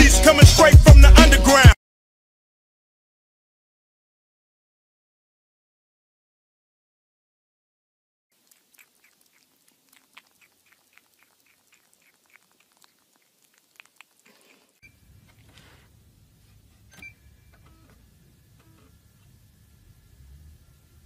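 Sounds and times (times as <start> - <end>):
kitten chewing clicks: 8.4 - 14.8.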